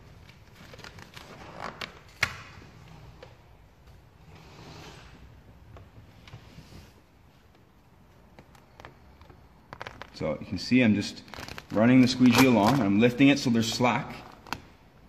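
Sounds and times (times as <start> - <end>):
film rubbing and rustling: 8.2 - 10.3, 11.2 - 13.0.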